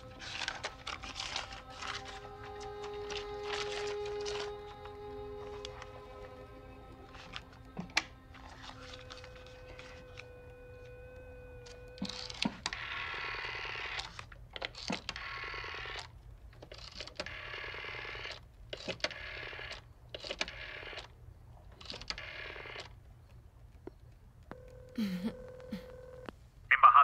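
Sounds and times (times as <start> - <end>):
telephone dial tone: 0.0 - 14.2, 15.1 - 16.1, 21.9 - 22.9, 24.5 - 27.0
rotary dial clicking and whirring: 7.2 - 21.1.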